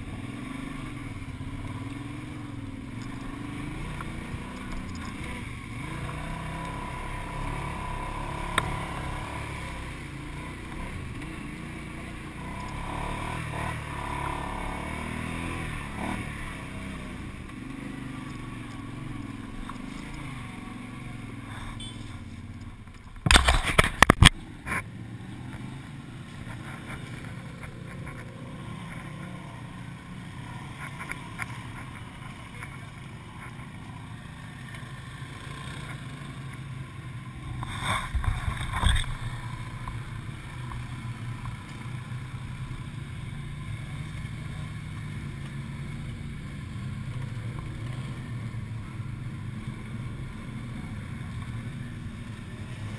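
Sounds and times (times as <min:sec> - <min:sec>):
atv engine running: 0:00.0 - 0:52.9.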